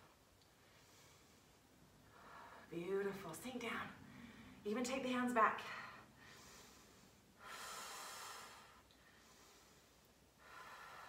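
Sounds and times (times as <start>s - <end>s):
woman breathing through throat: 5.8s - 11.0s.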